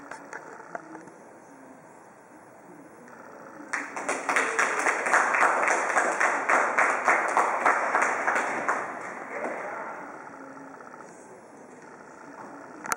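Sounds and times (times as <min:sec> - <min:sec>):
spectators clapping: 0:03.7 - 0:09.8.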